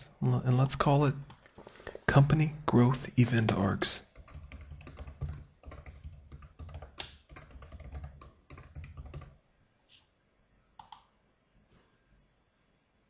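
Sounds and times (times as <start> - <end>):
typing on a keyboard: 4.0 - 9.4, 10.8 - 11.1.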